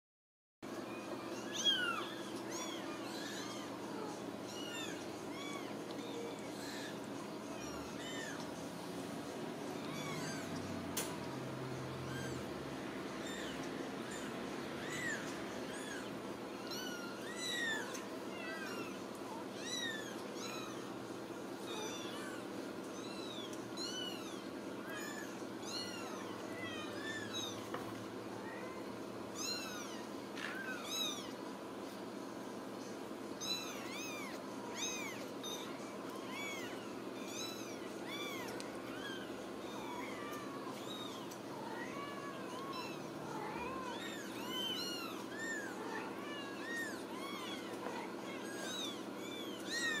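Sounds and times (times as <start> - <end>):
steady low hum: 0.7 - 50.0
kittens mewing: 0.9 - 8.7, 9.3 - 32.2, 32.8 - 50.0.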